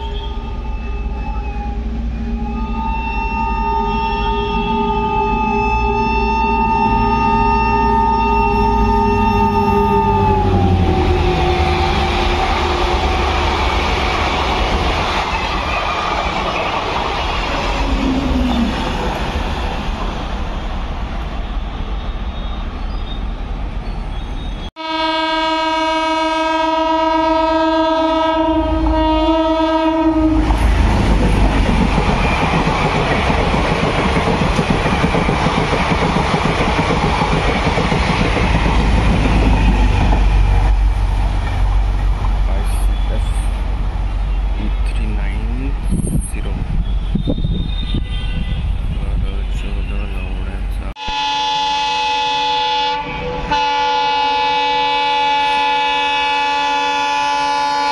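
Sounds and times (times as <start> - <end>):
train horn blast: 0.0 - 14.6, 24.8 - 31.0, 47.1 - 57.9
diesel train rumble and wheel clatter: 7.0 - 24.7, 27.9 - 51.0.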